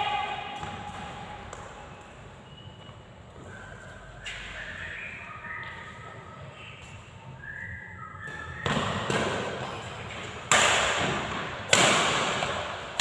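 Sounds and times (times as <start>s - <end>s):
racket hitting shuttlecock: 0.0s - 1.8s, 8.6s - 13.0s.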